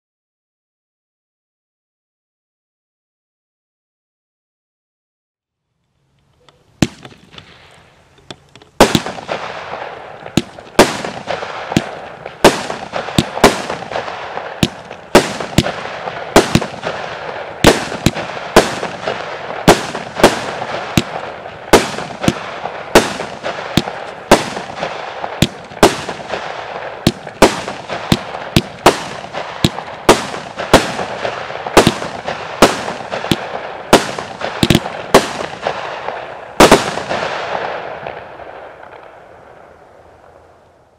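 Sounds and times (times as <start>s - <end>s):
firework bangs: 6.8s - 7.9s, 8.7s - 40.5s
firework crackle: 6.8s - 40.9s.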